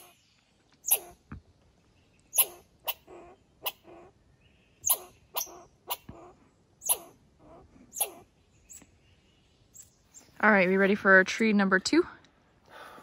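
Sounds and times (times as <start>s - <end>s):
squirrel barking alarm calls: 0.0s - 0.2s, 0.8s - 1.2s, 2.3s - 4.2s, 4.8s - 8.8s.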